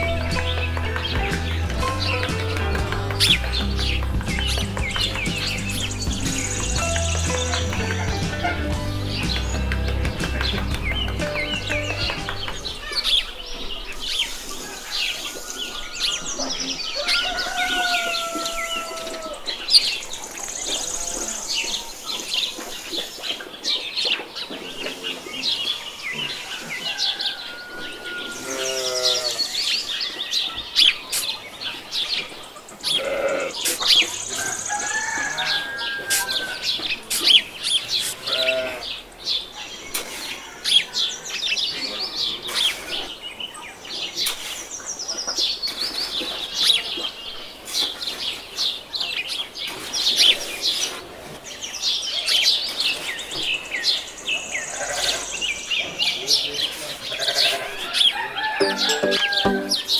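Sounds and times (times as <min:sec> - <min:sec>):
birds chirping: 0:00.0 - 0:40.0, 0:52.0 - 0:59.9
farm animal call: 0:27.7 - 0:29.6, 0:32.9 - 0:33.9, 0:38.1 - 0:39.0, 0:54.7 - 0:55.4, 0:56.8 - 0:59.9.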